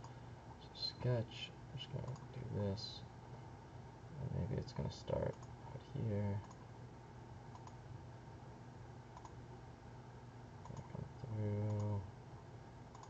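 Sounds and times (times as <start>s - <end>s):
computer mouse clicks: 2.0s - 2.3s, 5.3s - 5.6s, 6.4s - 6.6s, 7.5s - 7.8s, 9.2s - 9.4s, 10.6s - 11.0s, 11.6s - 12.0s.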